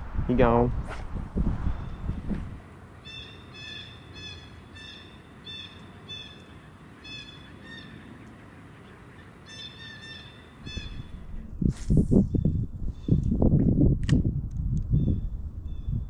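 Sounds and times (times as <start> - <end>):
bird calling nasal notes: 3.0 - 11.2.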